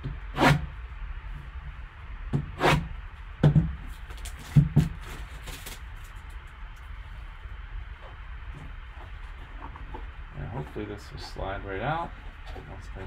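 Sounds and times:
plastic wrap crinkling: 0:04.0 - 0:06.6
knife slitting plastic wrap: 0:04.2 - 0:05.8.

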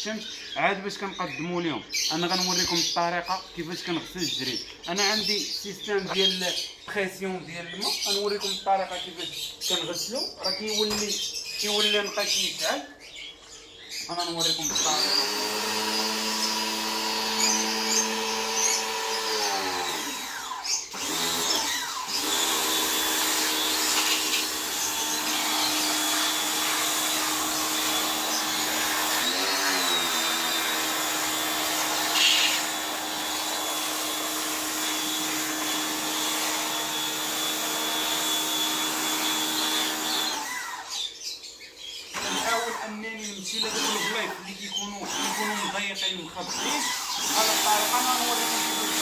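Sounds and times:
pressure washer running: 0:14.7 - 0:41.0, 0:42.1 - 0:43.0, 0:43.6 - 0:49.0.

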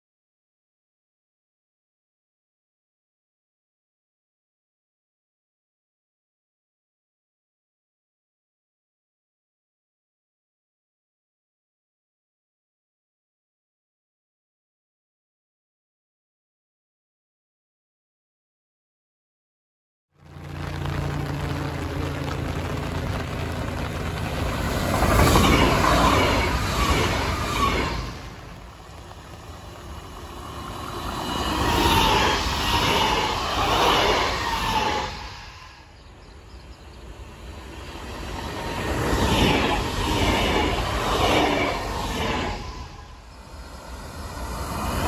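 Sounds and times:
electric train passing at speed: 0:20.2 - 0:45.0
wheels rumbling on rails: 0:20.2 - 0:45.0.

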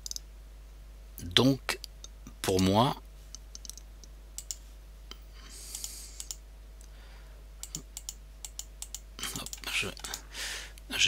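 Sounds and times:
computer mouse clicking: 0:00.0 - 0:00.3, 0:03.3 - 0:04.6, 0:05.7 - 0:06.4, 0:07.6 - 0:10.2.

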